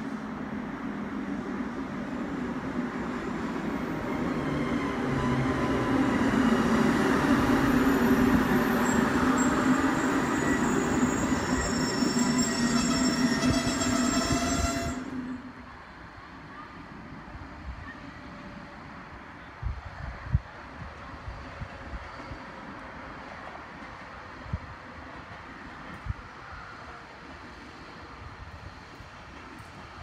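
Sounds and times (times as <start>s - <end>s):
train rolling past: 0.0s - 19.2s
high wheel squeal: 7.8s - 15.4s.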